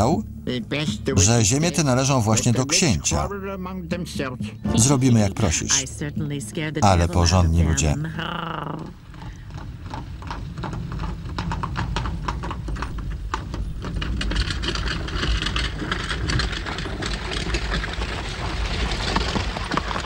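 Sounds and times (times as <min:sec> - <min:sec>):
low steady rumble: 0:00.0 - 0:20.0
horse hooves clip-clopping: 0:00.9 - 0:03.8, 0:06.8 - 0:20.0.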